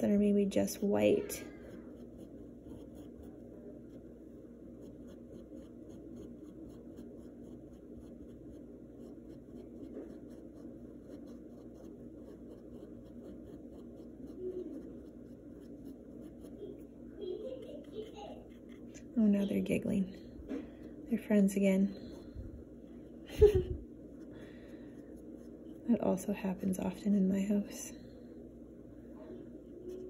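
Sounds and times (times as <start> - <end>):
paintbrush dabbing on canvas: 0.0 - 19.4
low background hum: 0.0 - 30.0.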